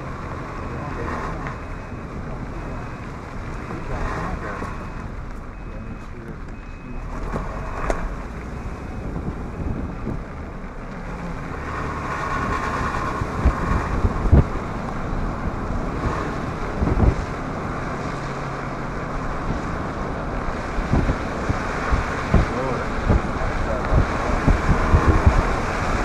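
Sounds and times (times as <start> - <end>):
vehicle road noise: 0.0 - 26.0
wind buffeting microphone: 6.3 - 26.0
gusty thumps: 7.1 - 17.9, 18.7 - 26.0.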